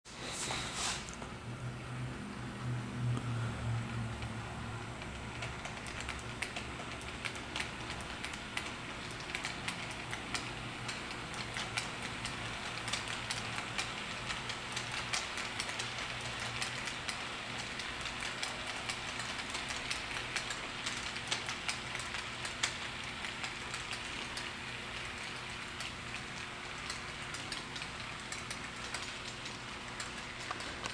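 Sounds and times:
model train wheels clicking: 5.0 - 30.9.

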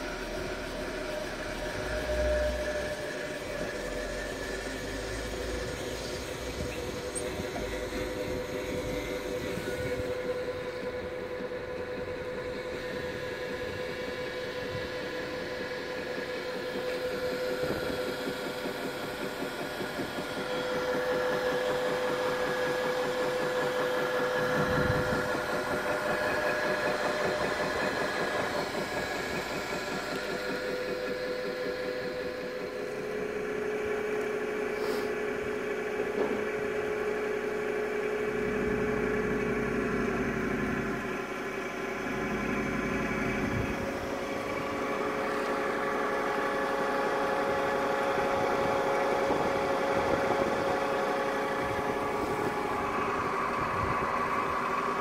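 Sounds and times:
paddle mixer humming and whining: 0.0 - 55.0.

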